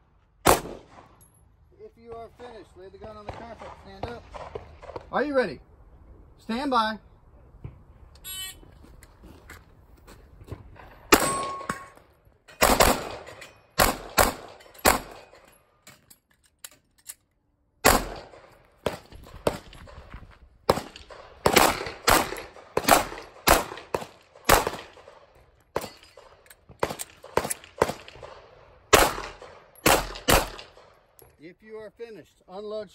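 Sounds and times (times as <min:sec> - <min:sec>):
pistol shots: 0:00.4 - 0:01.1, 0:11.1 - 0:11.8, 0:12.6 - 0:15.3, 0:17.8 - 0:19.8, 0:20.7 - 0:31.0.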